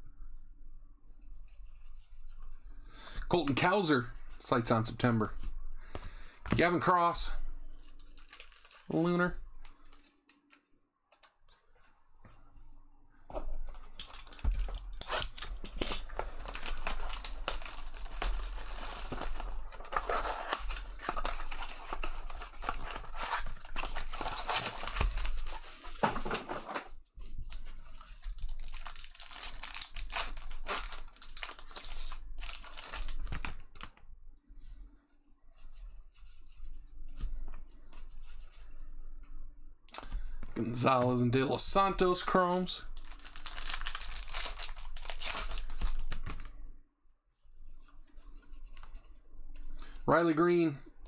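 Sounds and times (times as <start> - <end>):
foil and plastic crinkling: 7.9 - 10.6, 13.7 - 26.4, 27.4 - 34.0, 42.0 - 46.5
wrappers being torn open: 7.9 - 10.6, 13.9 - 25.6, 27.5 - 34.0, 43.0 - 46.5.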